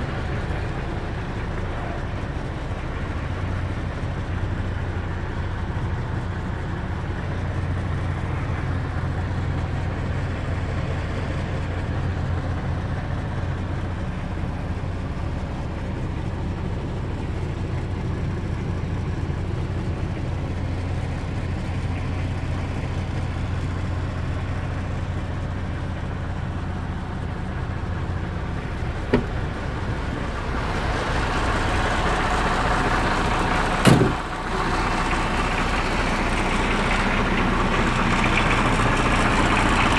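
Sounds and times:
diesel truck engine idling: 0.0s - 39.9s.

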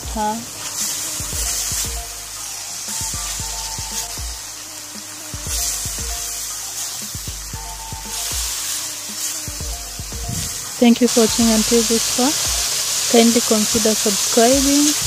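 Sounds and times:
background music: 0.0s - 15.0s
meat sizzling in oil: 0.0s - 15.0s
spatula stirring in pan: 0.0s - 15.0s.

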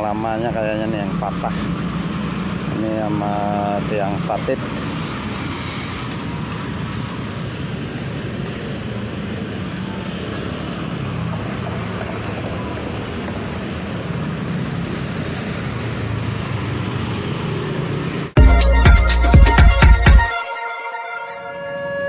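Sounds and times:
motorcycle and car engines passing: 0.0s - 18.4s
loud intro music: 18.4s - 22.0s.

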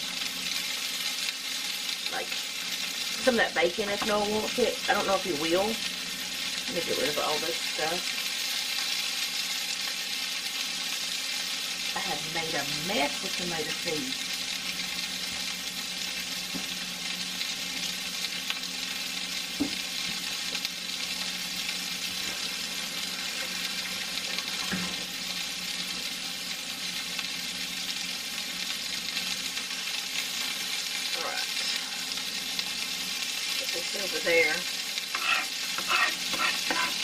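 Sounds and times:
patties sizzling: 0.0s - 37.0s.

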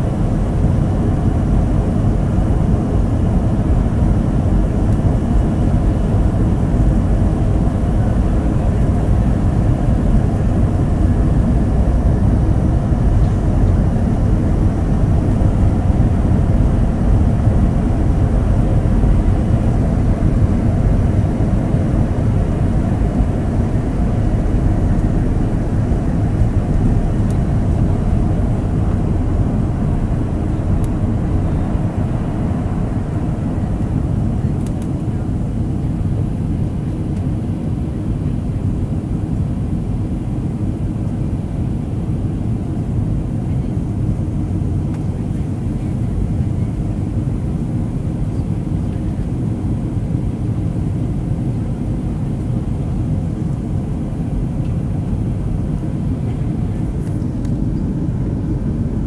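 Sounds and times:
jet engines rumbling: 0.0s - 59.0s.

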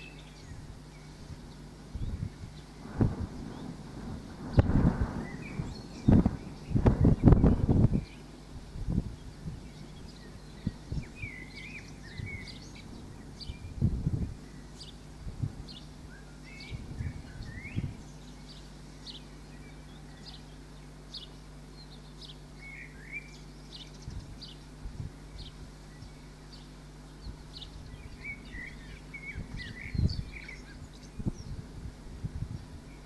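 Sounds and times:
songbirds chirping and singing: 0.0s - 3.8s, 4.5s - 8.4s, 9.0s - 31.7s
steady low hum: 0.0s - 33.0s
low thumps: 2.8s - 8.0s.

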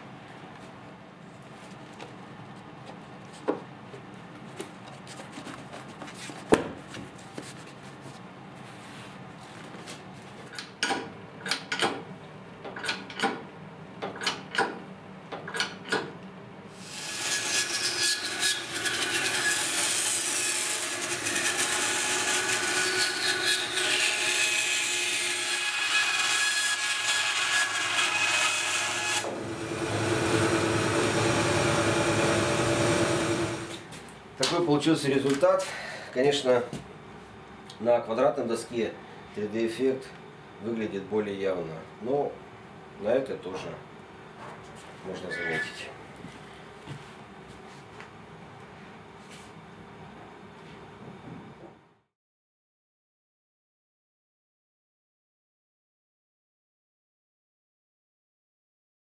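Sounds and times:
clicks and knocks of wooden board: 5.4s - 7.5s
bandsaw cutting wood: 16.8s - 33.9s
power saw cutting hardwood: 16.8s - 33.9s.

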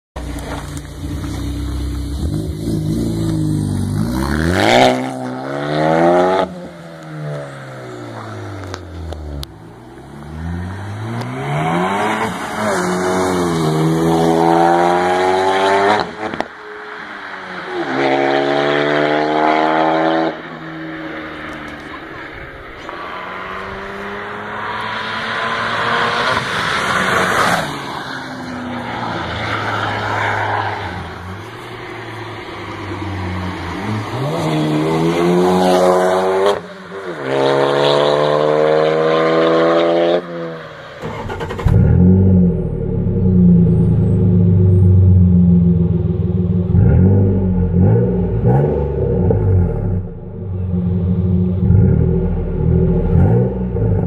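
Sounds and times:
car engine accelerating hard: 41.0s - 54.0s.

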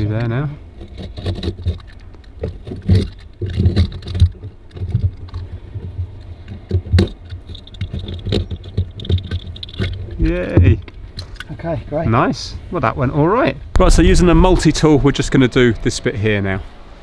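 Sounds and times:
fibreglass piece knocking and scraping: 0.2s - 11.4s.

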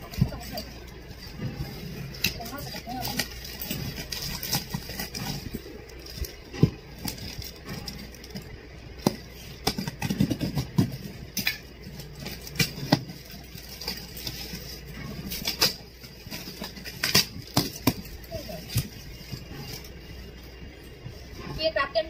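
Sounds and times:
cardboard flaps rustling: 0.0s - 20.6s.

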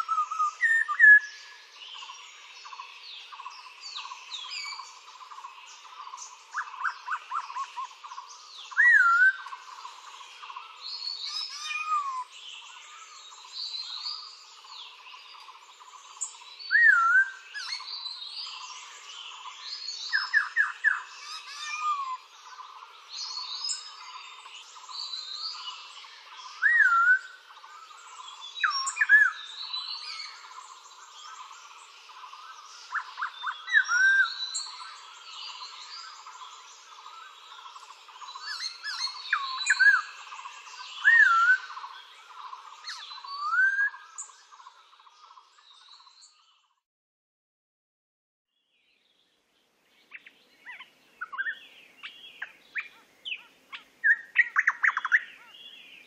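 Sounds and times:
swooping whistled bird call: 0.0s - 1.4s, 8.7s - 9.6s, 16.7s - 17.9s, 26.5s - 27.9s, 38.3s - 40.4s, 41.0s - 41.8s, 42.9s - 44.3s, 50.2s - 55.6s.

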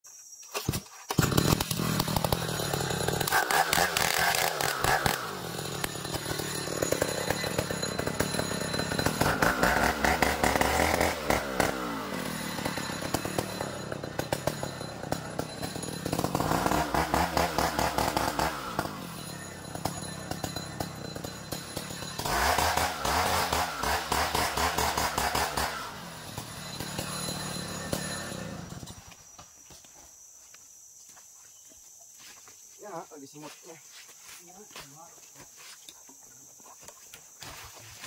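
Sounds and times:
chainsaw engine revving: 1.0s - 29.1s.

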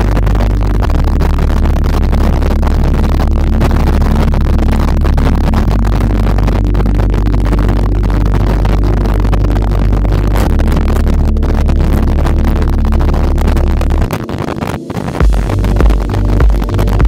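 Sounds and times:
motorcycle engine drone: 0.0s - 17.0s
wind rush: 0.0s - 17.0s
background music with beat: 10.0s - 17.0s.

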